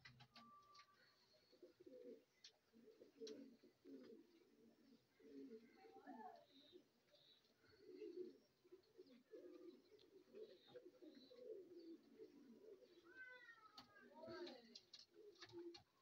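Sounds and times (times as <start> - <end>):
pigeons cooing: 0.0 - 16.0.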